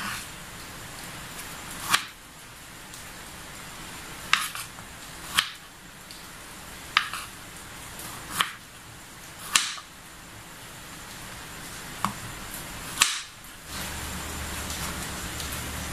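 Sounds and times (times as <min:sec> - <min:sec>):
knife chopping on wooden board: 0:01.8 - 0:02.2, 0:04.3 - 0:04.7, 0:05.3 - 0:05.6, 0:07.0 - 0:07.3, 0:08.3 - 0:08.6, 0:09.5 - 0:09.9, 0:13.0 - 0:13.3.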